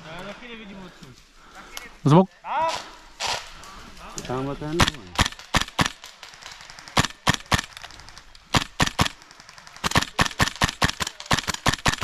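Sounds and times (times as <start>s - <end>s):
airsoft gun shots: 4.8s - 6.1s, 8.5s - 9.2s, 9.8s - 12.0s.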